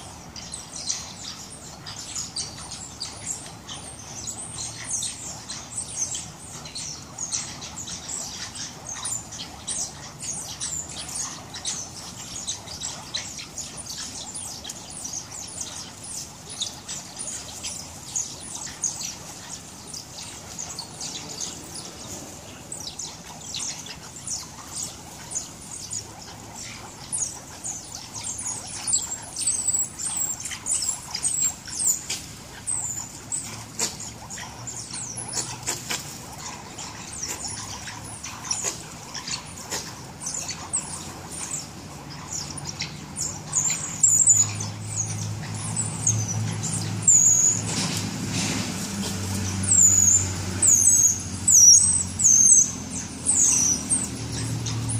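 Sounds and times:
mongooses chirping: 0.0 - 54.9.

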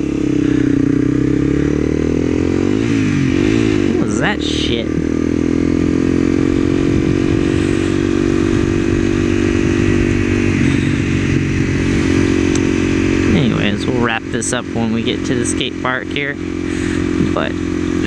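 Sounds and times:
motorcycle engine cruising: 0.0 - 18.0
wind rush: 6.3 - 13.3.

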